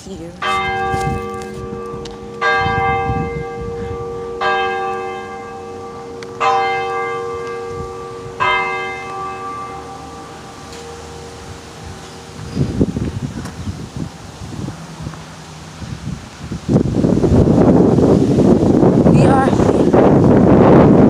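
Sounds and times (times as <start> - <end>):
large bell tolling: 0.4 - 13.4.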